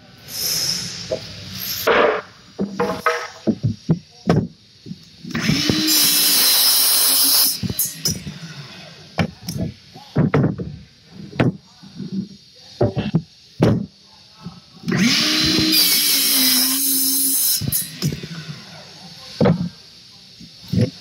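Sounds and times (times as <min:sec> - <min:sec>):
miter saw cutting wood: 0:05.3 - 0:08.2, 0:14.9 - 0:18.5.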